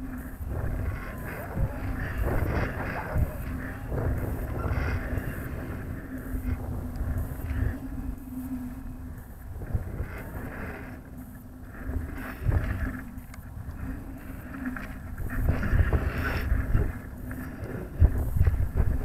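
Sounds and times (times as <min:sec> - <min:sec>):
faint steady hum: 0:00.0 - 0:19.0
wind buffeting microphone: 0:00.0 - 0:19.0.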